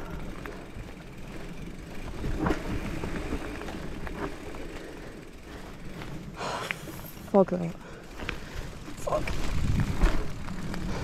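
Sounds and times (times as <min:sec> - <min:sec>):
bike rattling: 0:00.0 - 0:11.0
bike tyres rumbling on dirt: 0:00.0 - 0:11.0.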